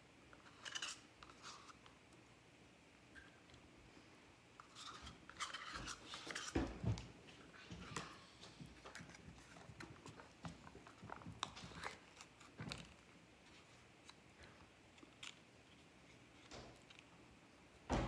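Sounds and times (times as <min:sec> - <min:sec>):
plastic cups crinkling: 0:04.6 - 0:17.1.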